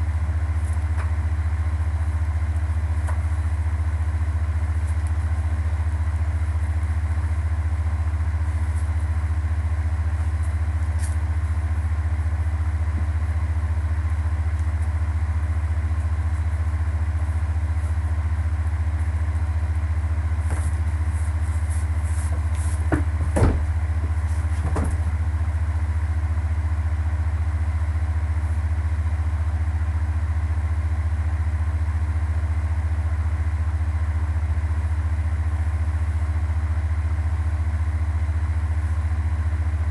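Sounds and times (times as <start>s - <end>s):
loud steady low hum: 0.0s - 39.9s
sharp knocks: 22.9s - 23.8s.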